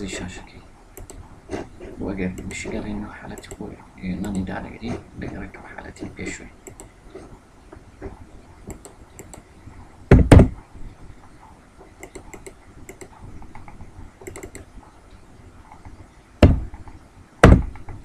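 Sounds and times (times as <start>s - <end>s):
mouse clicks: 1.0s - 1.6s, 2.3s - 4.4s, 6.6s - 7.0s, 8.6s - 9.5s, 12.0s - 14.7s
heavy thumps: 10.1s - 10.6s, 16.4s - 18.0s
keyboard keystrokes: 12.0s - 14.7s.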